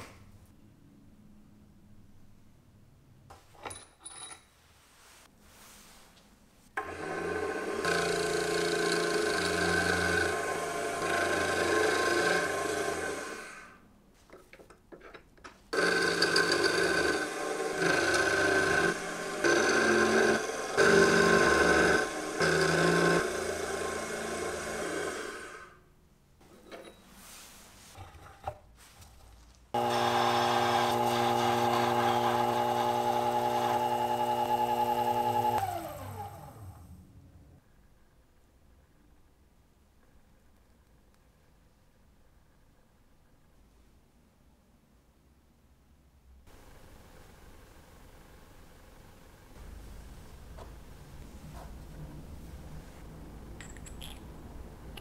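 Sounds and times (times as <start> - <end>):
milling machine cutting metal: 15.8 - 25.4, 29.8 - 36.2.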